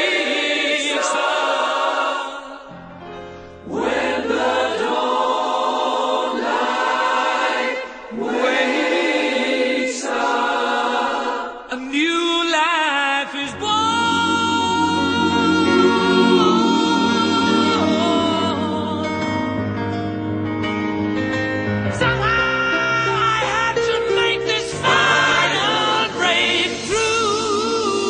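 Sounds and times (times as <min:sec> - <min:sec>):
choir singing held chords: 0:00.0 - 0:02.9, 0:03.5 - 0:11.8, 0:13.5 - 0:20.3, 0:23.8 - 0:28.0.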